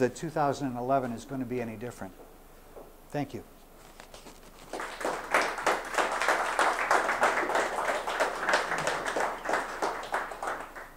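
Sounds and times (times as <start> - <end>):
audience applauding: 4.6 - 10.9.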